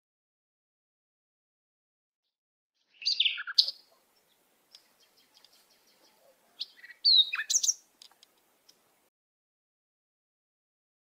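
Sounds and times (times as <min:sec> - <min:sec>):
robin singing: 0:02.8 - 0:09.1.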